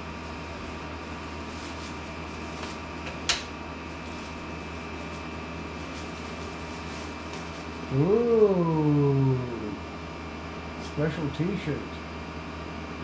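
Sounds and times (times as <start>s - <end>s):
room hum: 0.0s - 13.0s
wrapping paper crinkling: 0.2s - 7.9s.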